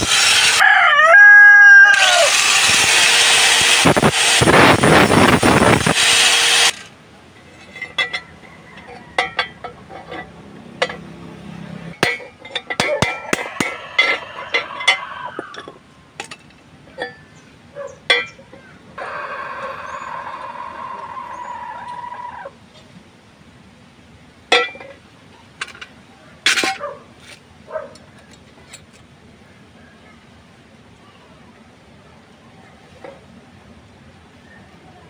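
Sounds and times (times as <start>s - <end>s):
pitched mechanical hum: 0.0s - 35.0s
metal clinks and knocks: 7.4s - 11.1s, 12.0s - 17.3s.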